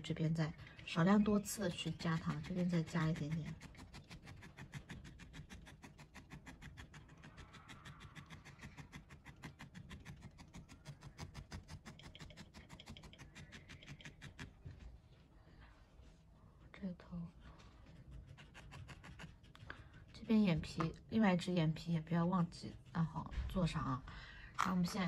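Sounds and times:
felting needle poking wool: 0:00.0 - 0:15.0, 0:17.6 - 0:24.0.

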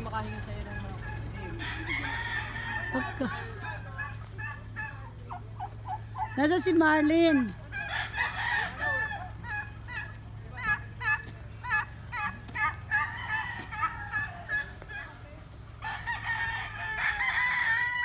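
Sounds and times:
chickens clucking: 0:00.0 - 0:18.0
rooster crowing: 0:01.0 - 0:05.0, 0:07.7 - 0:09.6, 0:12.6 - 0:15.1, 0:15.8 - 0:18.0.

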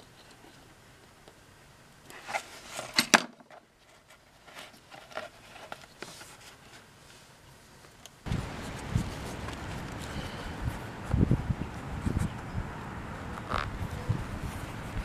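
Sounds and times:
small clicks and rustles: 0:02.0 - 0:08.2.

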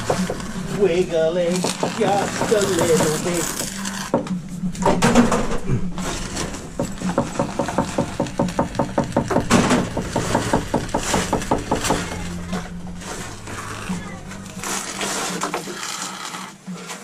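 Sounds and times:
steady low hum: 0:00.0 - 0:15.4
foam gun sputtering: 0:06.0 - 0:16.6.

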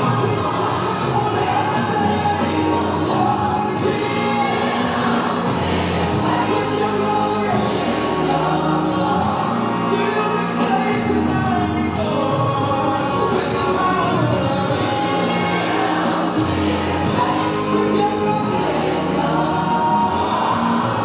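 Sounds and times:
gospel song singing: 0:00.0 - 0:21.0.

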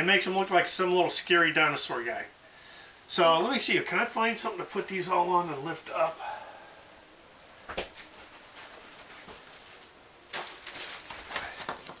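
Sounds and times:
plastic packet crinkling: 0:08.6 - 0:12.0.

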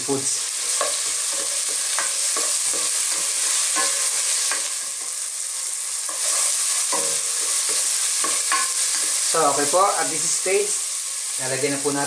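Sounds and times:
vegetables sizzling in hot oil: 0:00.0 - 0:12.0
spatula scraping a pot: 0:00.6 - 0:09.3.

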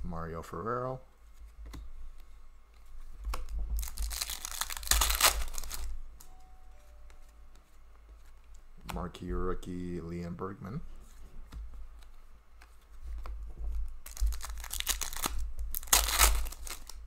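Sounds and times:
card pack wrapper tearing: 0:03.8 - 0:05.9, 0:14.0 - 0:17.0.

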